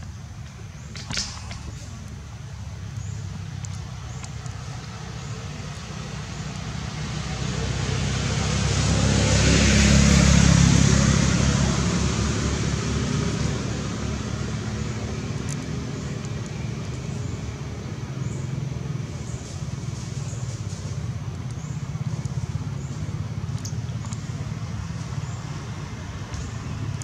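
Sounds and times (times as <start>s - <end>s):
vehicle passing by: 3.0s - 27.0s.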